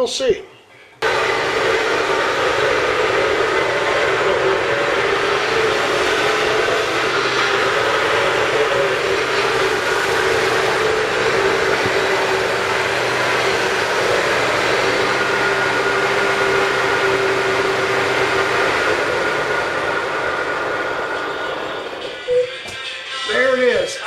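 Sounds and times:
riding mower engine drone: 0:01.0 - 0:22.8.

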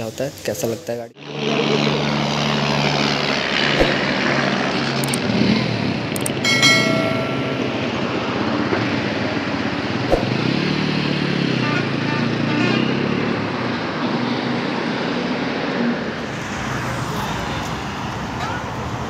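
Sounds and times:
road traffic rushing: 0:01.2 - 0:19.0
sharp click: 0:05.0 - 0:05.2, 0:06.2 - 0:07.4.

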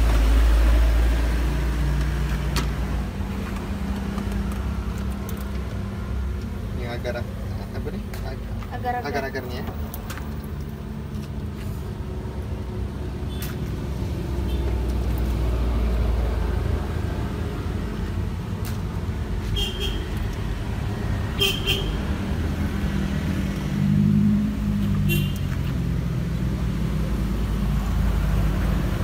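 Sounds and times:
road traffic passing: 0:00.0 - 0:29.0
vehicle engine rumble: 0:00.0 - 0:29.0.

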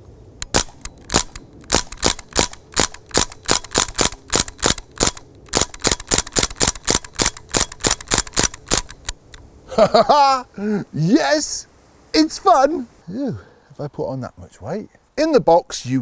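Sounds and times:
bb rifle shots: 0:00.4 - 0:09.2.

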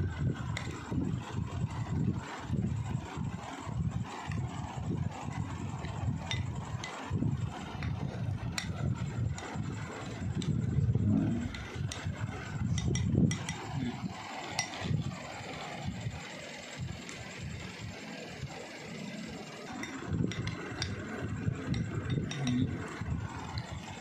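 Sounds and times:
low rumble: 0:00.0 - 0:14.2
spoon stirring yoghurt in bowl: 0:07.6 - 0:15.8, 0:19.5 - 0:24.0
spoon clicking on glass: 0:21.7 - 0:22.7.

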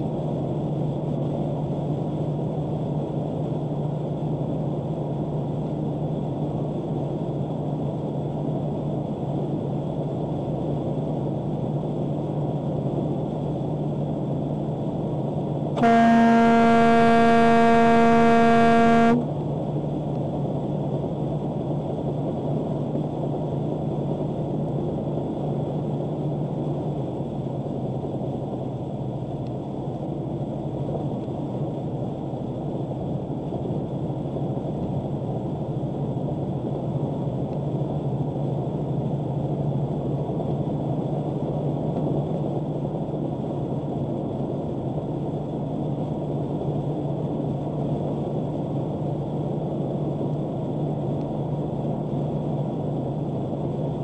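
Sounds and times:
truck engine and tyres droning: 0:15.8 - 0:19.2
truck air horn blast: 0:15.8 - 0:19.3.

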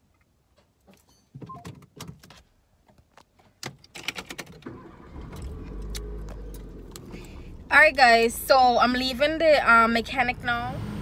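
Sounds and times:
clicks and rattles inside a car: 0:00.1 - 0:07.4
car engine starting and running: 0:03.7 - 0:11.0.

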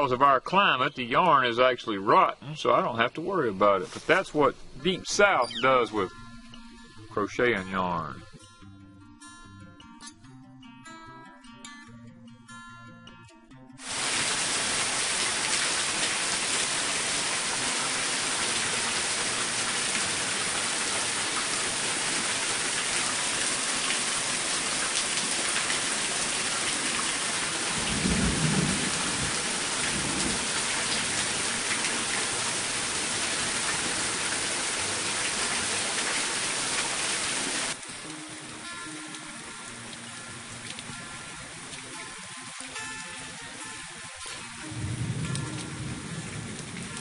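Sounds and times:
heavy rain pouring: 0:13.8 - 0:47.0
low rumble of thunder: 0:27.8 - 0:30.6, 0:44.8 - 0:47.0.

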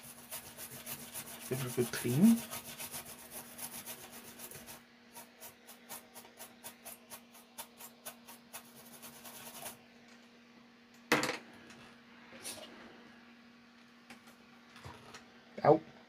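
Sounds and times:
brush scrubbing circuit board: 0:00.0 - 0:09.8.

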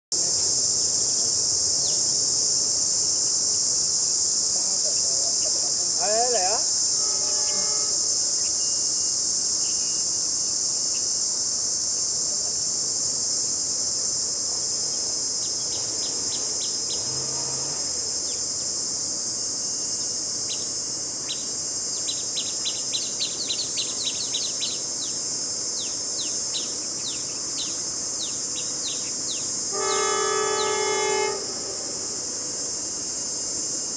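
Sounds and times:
high-pitched insect drone: 0:00.2 - 0:33.9
bird chirps: 0:20.5 - 0:25.2, 0:25.8 - 0:29.5.

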